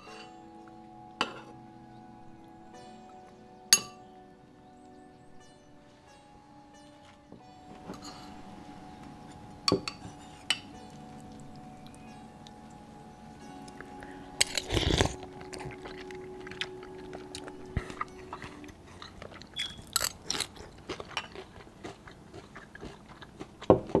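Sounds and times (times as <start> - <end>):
crunching and chewing: 13.4 - 24.0
slurping soup: 14.4 - 16.0.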